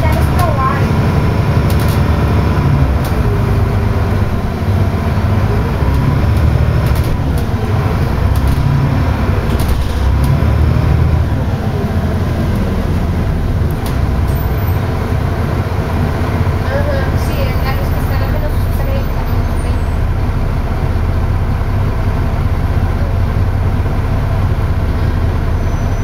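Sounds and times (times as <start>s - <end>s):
rattles and knocks from bus body: 0.0s - 11.6s, 12.2s - 16.1s
bus engine and road rumble: 0.0s - 26.0s.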